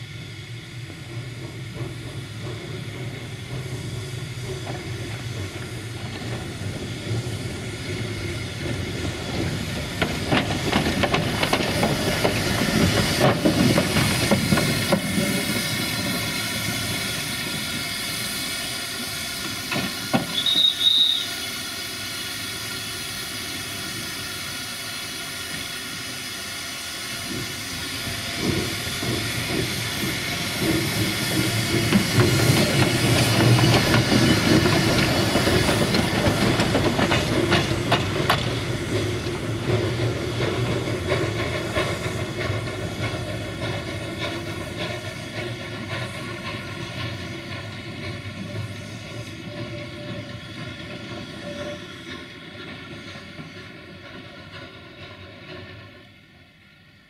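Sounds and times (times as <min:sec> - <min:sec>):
steam hiss: 0:00.0 - 0:57.0
locomotive wheels knocking on rails: 0:01.0 - 0:17.8, 0:27.3 - 0:56.1
high wheel squeal: 0:20.2 - 0:22.6, 0:48.7 - 0:52.2.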